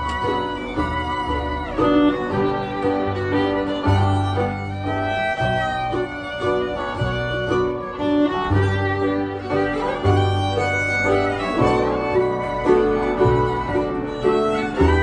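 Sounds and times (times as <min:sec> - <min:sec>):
acoustic guitar: 0:00.0 - 0:15.0
fiddle melody: 0:00.0 - 0:15.0
upright bass notes: 0:00.0 - 0:15.0.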